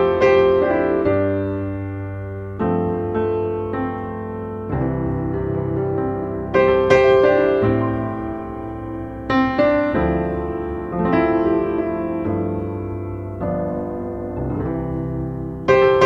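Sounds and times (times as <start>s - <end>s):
slow solo piano chords: 0.0s - 16.0s.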